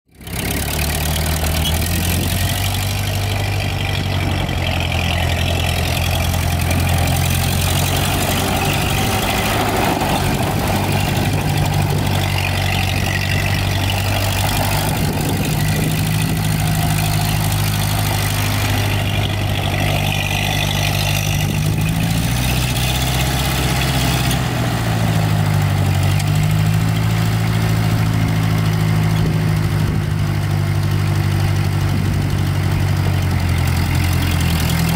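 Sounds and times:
tractor engine running: 0.1s - 34.9s.

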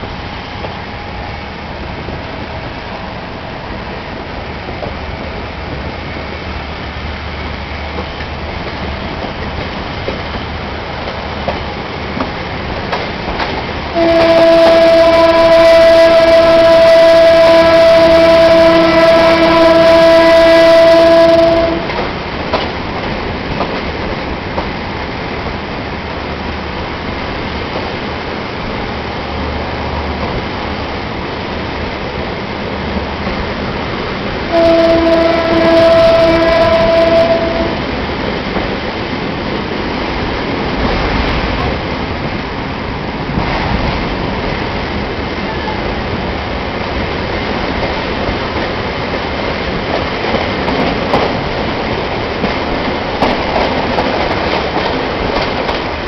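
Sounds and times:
train running along track: 0.0s - 56.0s
train horn blast: 13.9s - 22.0s, 34.5s - 38.0s.

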